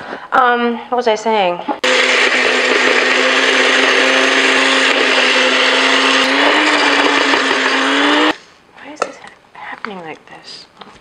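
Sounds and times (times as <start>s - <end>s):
blender motor whirring: 1.8s - 8.4s.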